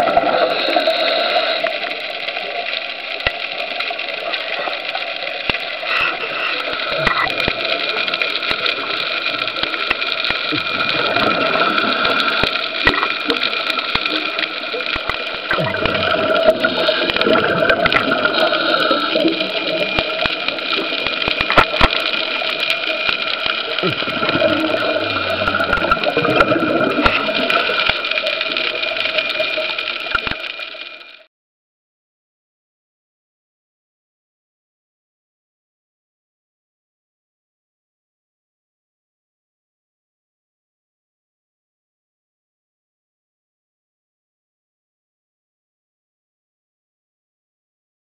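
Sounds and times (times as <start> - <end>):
underwater hiss and bubbling: 0.0 - 31.3
sharp underwater clicks: 1.5 - 31.2.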